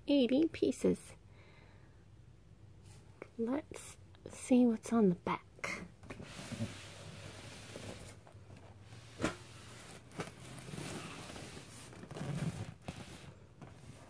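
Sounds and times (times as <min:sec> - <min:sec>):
cardboard box scraping and rustling: 0:08.9 - 0:14.0.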